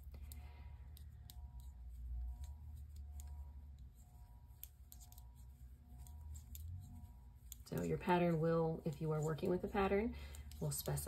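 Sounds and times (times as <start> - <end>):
knitting needles clicking: 0.0 - 11.0
steady low hum: 0.0 - 11.0.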